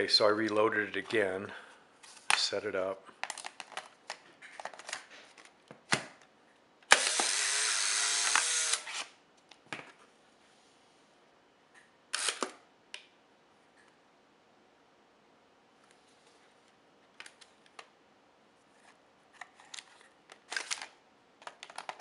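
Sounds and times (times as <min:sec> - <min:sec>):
camera motor whirring: 0:06.9 - 0:09.1.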